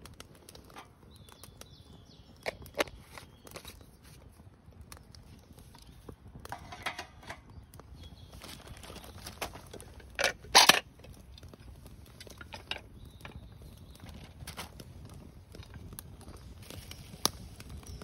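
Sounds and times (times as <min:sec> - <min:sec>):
objects clicking and knocking: 0:02.4 - 0:03.7, 0:06.4 - 0:07.6, 0:08.8 - 0:13.4
objects clattering: 0:06.5 - 0:07.5, 0:08.4 - 0:11.2, 0:12.2 - 0:13.4.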